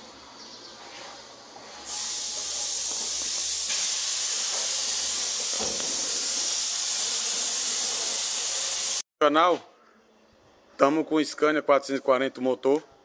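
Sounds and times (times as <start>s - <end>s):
loud steady hiss: 1.9s - 9.0s.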